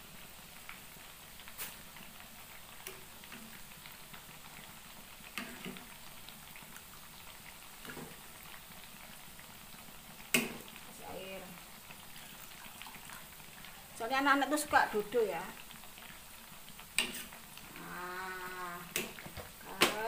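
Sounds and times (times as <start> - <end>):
faint bubbling: 10.4 - 20.0.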